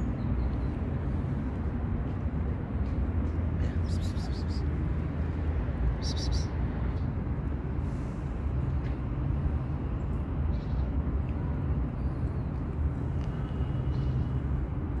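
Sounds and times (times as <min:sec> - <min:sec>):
low rumble of urban background noise: 0:00.0 - 0:15.0.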